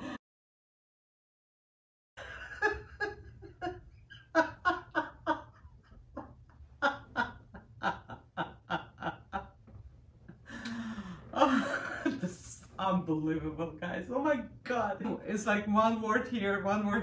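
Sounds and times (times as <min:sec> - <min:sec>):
woman laughing hard: 0:02.2 - 0:09.5.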